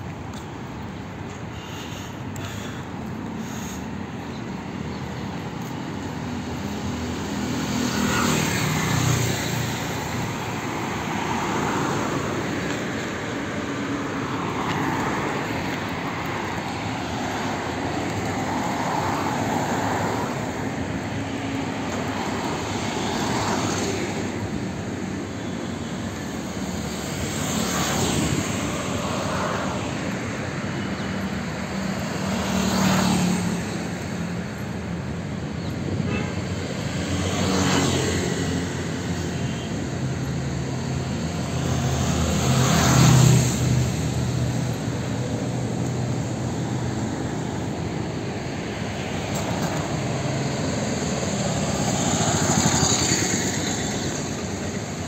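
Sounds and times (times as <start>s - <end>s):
traffic passing close by: 0.0s - 55.0s
vehicle road and engine noise: 0.0s - 55.0s.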